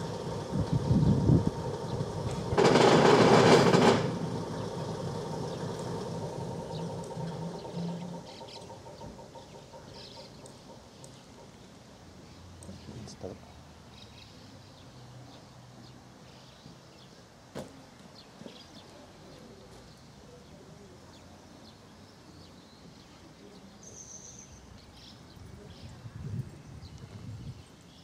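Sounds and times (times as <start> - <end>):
sharp knocks: 2.3 - 4.7
birds chirping: 4.3 - 17.3.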